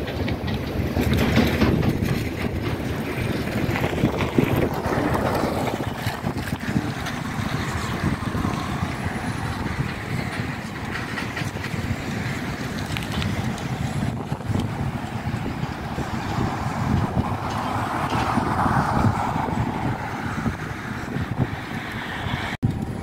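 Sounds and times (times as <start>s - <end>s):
vehicle engine and road noise: 0.0s - 23.0s
wind on microphone: 0.0s - 23.0s.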